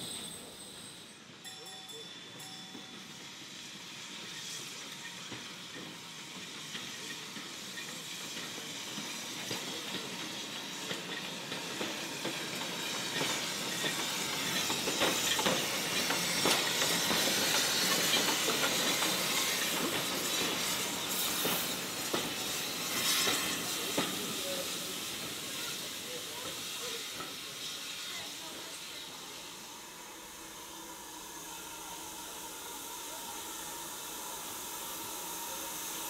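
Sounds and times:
steam hissing: 0.0s - 36.0s
train wheels clicking and rattling: 2.2s - 29.6s.

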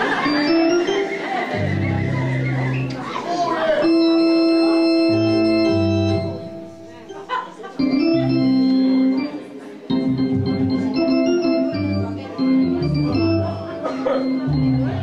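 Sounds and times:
organ chords over slow bass: 0.0s - 3.0s, 3.8s - 7.0s, 7.8s - 9.3s, 9.9s - 15.0s.

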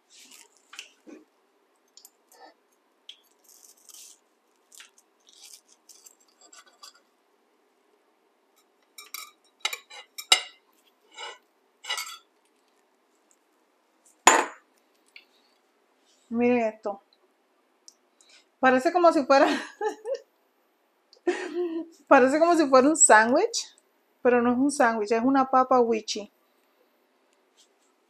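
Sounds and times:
fried crust crunching: 3.1s - 7.0s
knife clinking on plate: 9.0s - 10.6s, 11.2s - 12.3s.

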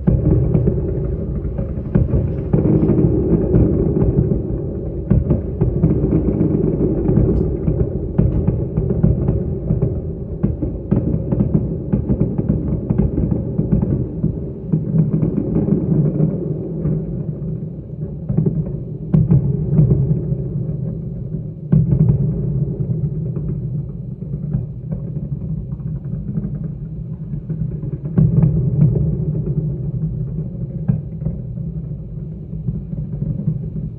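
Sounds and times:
building implosion rumble: 0.0s - 17.3s.

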